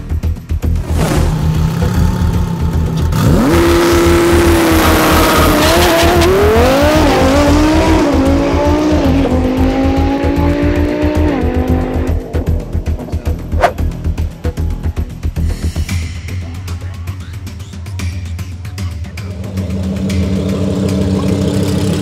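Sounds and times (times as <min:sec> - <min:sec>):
music with steady beat: 0:00.0 - 0:22.0
car engine accelerating: 0:00.8 - 0:14.0.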